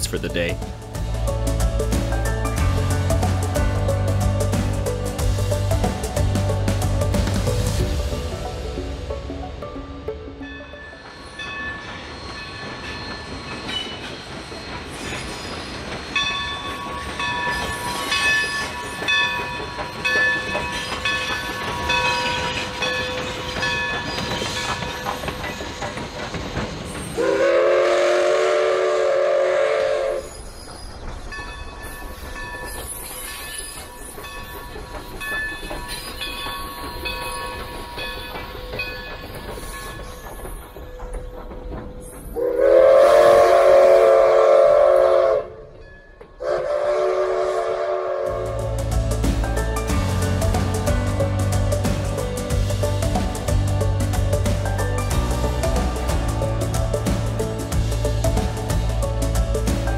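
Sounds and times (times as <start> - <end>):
train wheels clicking over rails: 10.8 - 45.4, 46.1 - 59.9
steam locomotive whistle blast: 27.2 - 30.5, 42.4 - 45.7, 46.4 - 48.7.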